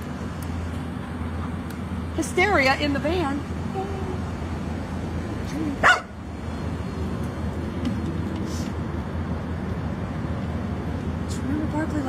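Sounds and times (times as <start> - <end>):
distant traffic rumble: 0.0 - 12.0.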